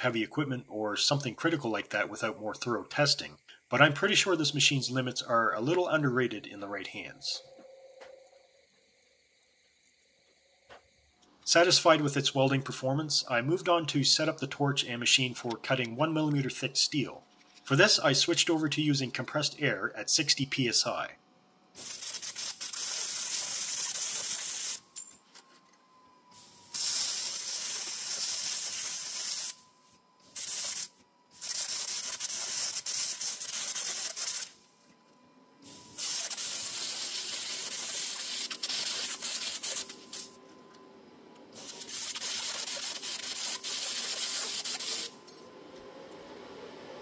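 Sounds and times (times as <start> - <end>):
compressed air hissing: 21.8 - 24.8, 26.4 - 29.6, 30.2 - 34.6, 35.7 - 40.4, 41.6 - 45.2.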